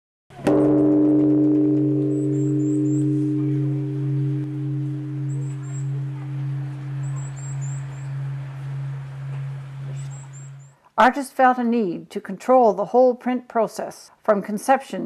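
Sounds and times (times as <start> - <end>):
singing bowl ringing: 0.5 - 10.7
high bird chirps: 1.9 - 10.7.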